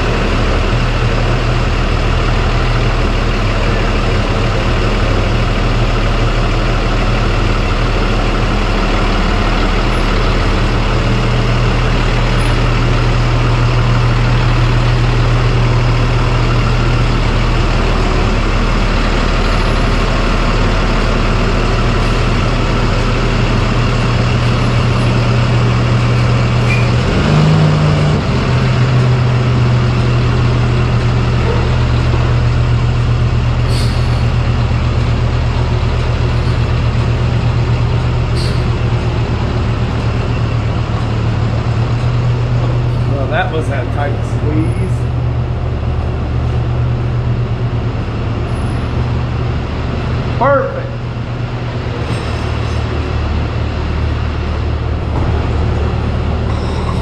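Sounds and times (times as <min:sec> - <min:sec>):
vehicle engine idling: 0:00.0 - 0:57.0.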